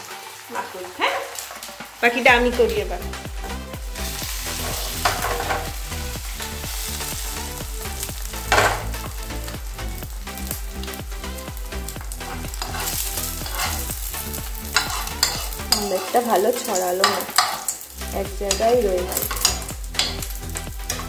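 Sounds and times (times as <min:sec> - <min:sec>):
egg sizzling in oil: 0:00.0 - 0:21.0
metal spoon scraping pan: 0:04.5 - 0:05.8, 0:12.2 - 0:14.0, 0:14.6 - 0:21.0.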